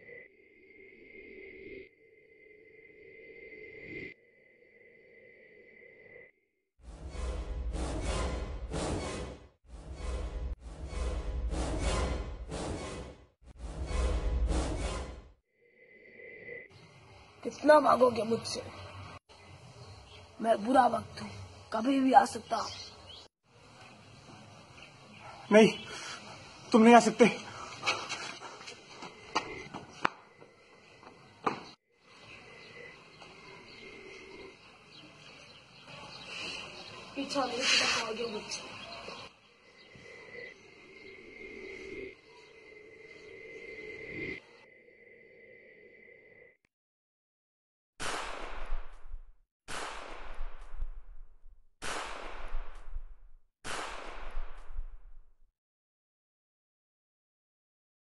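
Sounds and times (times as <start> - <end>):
faint outdoor background: 0.0 - 46.6
gunshots with echoing tail: 48.0 - 55.1.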